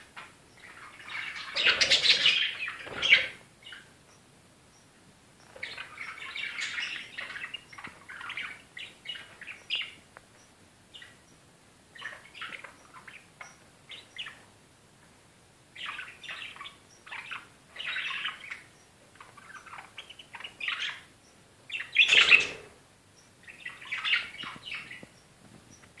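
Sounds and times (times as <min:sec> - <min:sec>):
budgerigars chattering and chirping: 0:00.1 - 0:03.9, 0:05.4 - 0:10.0, 0:11.9 - 0:14.5, 0:15.8 - 0:21.1, 0:21.7 - 0:22.8, 0:23.4 - 0:25.1.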